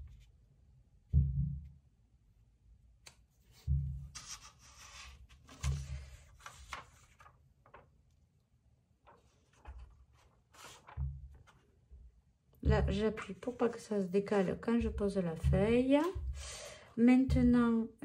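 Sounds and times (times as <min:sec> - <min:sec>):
plastic sheet rustling and crackling: 0:04.2 - 0:08.0, 0:09.0 - 0:11.6.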